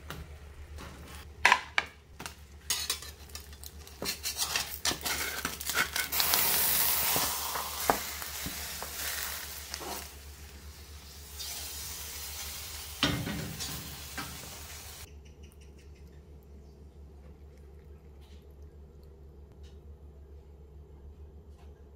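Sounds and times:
food sizzling in a pan: 4.0 - 15.1.

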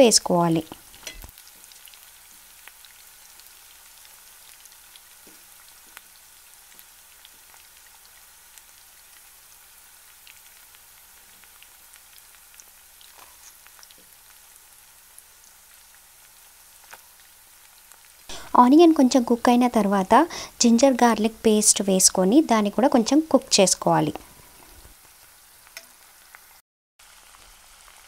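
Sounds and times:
food sizzling in hot oil: 0.0 - 28.0
oil popping and crackling: 0.6 - 18.3.

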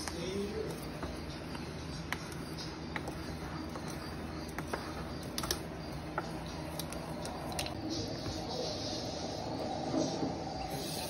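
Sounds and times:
spatula scraping a bowl: 0.0 - 8.4
steady low hum: 0.0 - 11.0.

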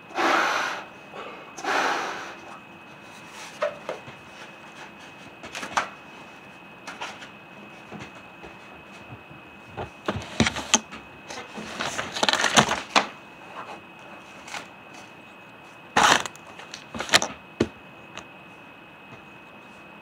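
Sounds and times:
handling clicks and knocks: 16.0 - 17.4.

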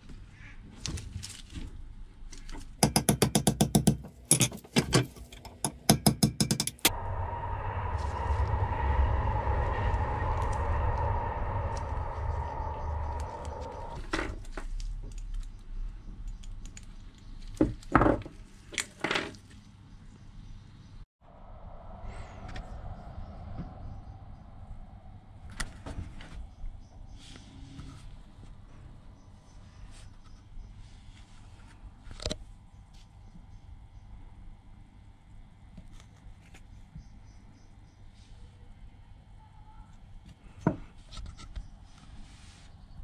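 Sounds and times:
steady hum: 6.5 - 14.4, 21.2 - 31.2.

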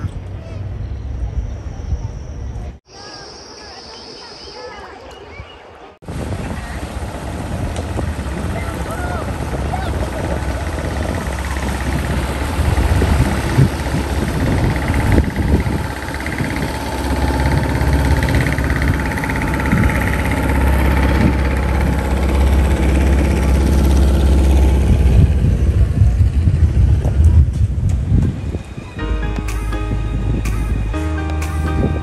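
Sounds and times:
outboard motor droning: 6.1 - 26.9.

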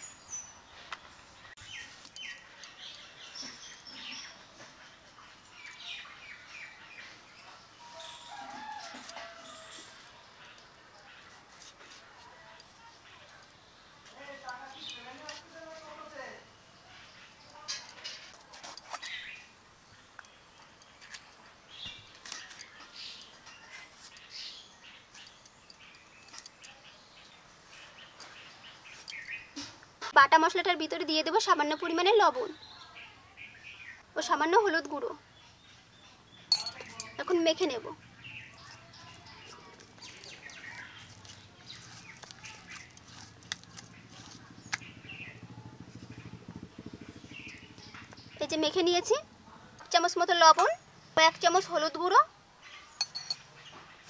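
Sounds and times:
small birds chirping: 0.0 - 54.0
fingers squishing moist paste: 39.1 - 44.9.

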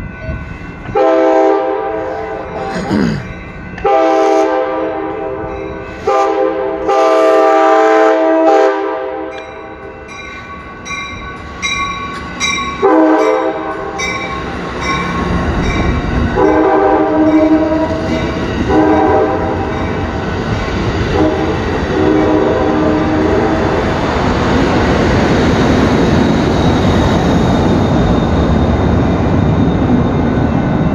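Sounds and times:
train horn blasts: 0.9 - 2.6, 3.8 - 5.4, 6.0 - 9.4, 12.8 - 13.7, 16.4 - 18.0, 18.6 - 19.6, 21.1 - 23.5
rumble of train cars rolling: 3.3 - 30.9.

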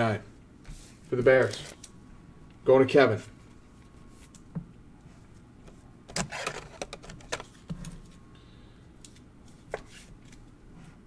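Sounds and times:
plastic card holder rustling: 5.7 - 7.7.

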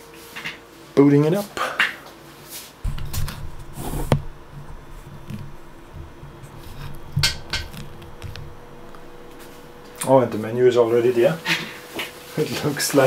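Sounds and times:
light clattering knocks: 2.9 - 12.6.

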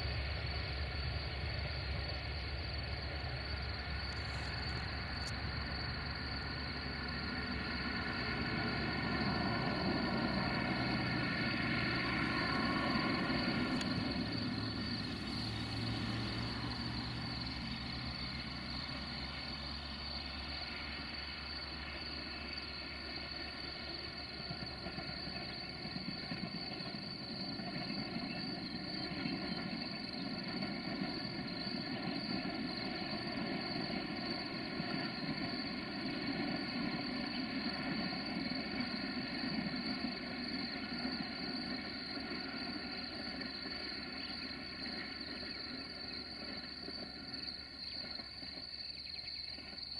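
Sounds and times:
distant diesel locomotive drone: 0.0 - 49.9
low rumble of train: 0.0 - 49.9.

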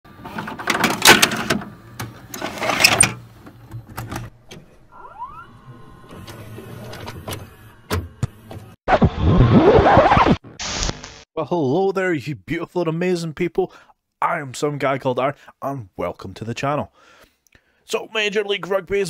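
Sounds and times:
motor whine: 4.8 - 8.8.

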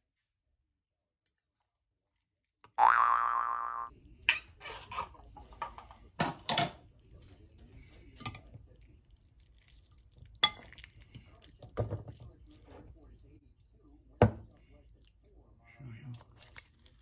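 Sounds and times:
fork clinking against ceramic bowl: 8.2 - 8.5, 10.2 - 11.1.

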